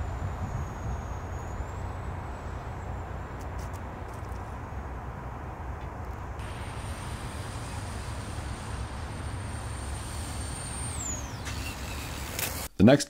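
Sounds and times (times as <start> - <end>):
electric motor whine: 6.4 - 12.7.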